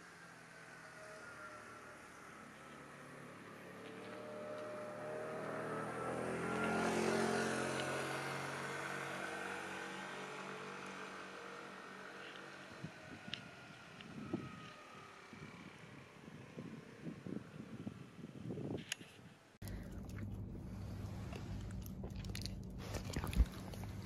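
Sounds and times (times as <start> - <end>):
vehicle passing: 0.0 - 18.5.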